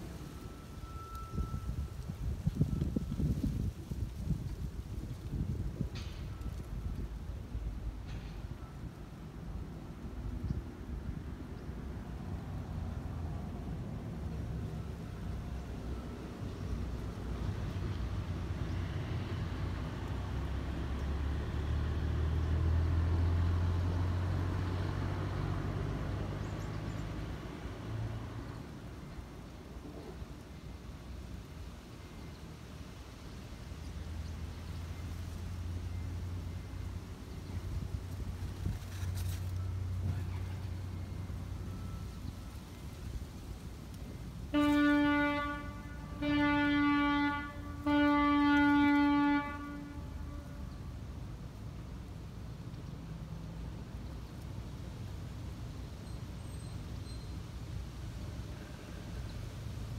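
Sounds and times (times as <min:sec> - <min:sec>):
vehicle engine rumble: 0:00.0 - 0:59.9
long horn blasts: 0:44.5 - 0:51.1.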